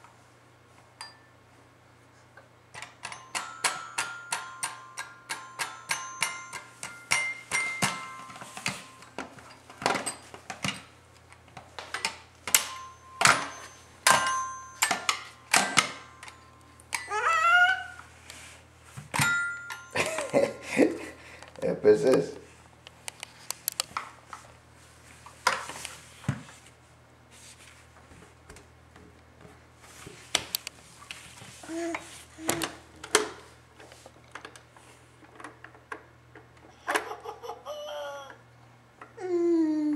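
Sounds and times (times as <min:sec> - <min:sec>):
toy xylophone clattering and ringing: 0:03.0 - 0:09.1.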